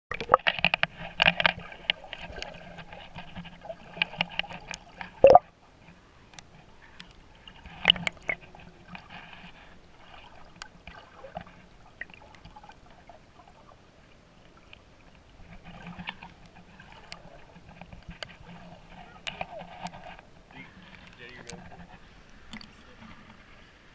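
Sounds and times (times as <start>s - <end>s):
water bubbling underwater: 0.1s - 5.6s, 7.2s - 20.4s.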